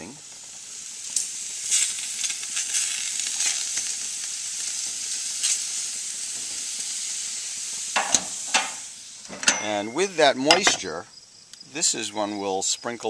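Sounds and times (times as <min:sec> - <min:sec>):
juice hissing on hot surface: 0:00.0 - 0:13.0
vegetables sizzling on a grill: 0:00.0 - 0:13.0.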